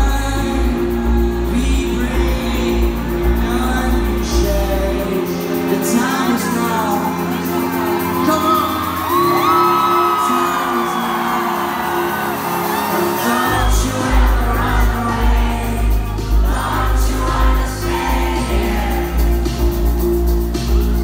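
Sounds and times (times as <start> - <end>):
heavy bass beat: 0.0 - 9.5, 13.3 - 21.0
person singing: 0.0 - 19.8
live pop band music: 0.0 - 21.0
audience whooping: 7.2 - 19.4.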